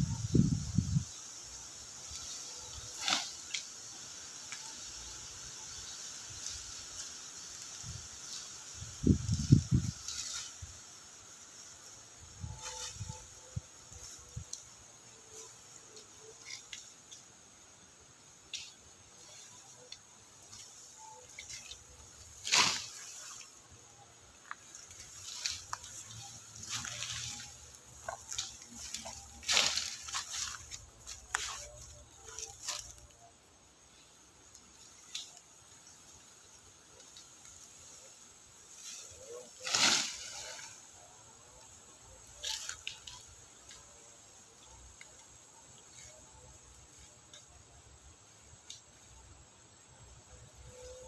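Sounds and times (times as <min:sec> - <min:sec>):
grass and leaves rustling: 0:00.0 - 0:51.0
high insect drone: 0:00.0 - 0:51.0
faint ticks: 0:02.0 - 0:04.9
swishing rustle: 0:21.4 - 0:23.6, 0:24.7 - 0:33.0, 0:38.7 - 0:40.8.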